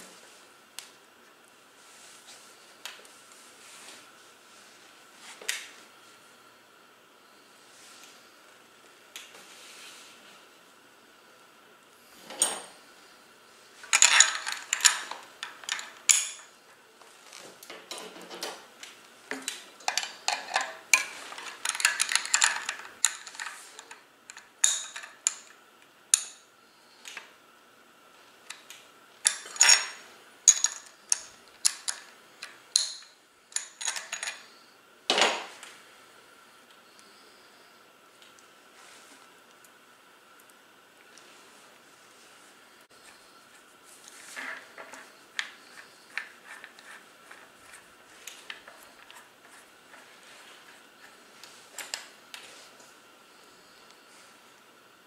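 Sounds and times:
small metal parts clinking: 13.8 - 16.5, 19.8 - 25.5, 29.2 - 32.0, 32.8 - 34.5.

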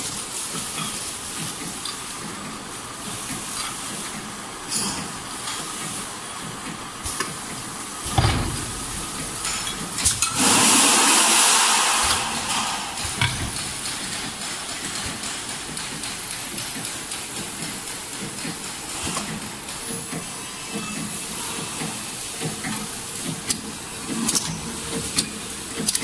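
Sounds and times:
filling machine running: 6.9 - 26.0
loud hiss: 10.1 - 14.8.

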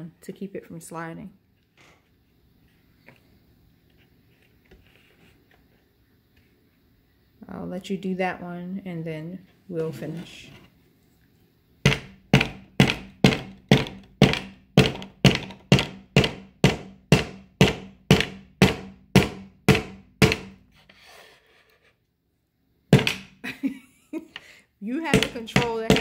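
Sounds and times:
hammer driving nail into wood: 11.9 - 20.6, 22.9 - 23.4, 25.1 - 26.0.

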